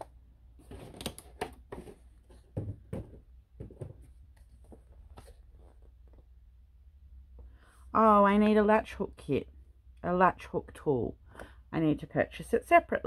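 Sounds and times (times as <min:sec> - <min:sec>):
cardboard box knocks and rustles: 0:01.7 - 0:04.1.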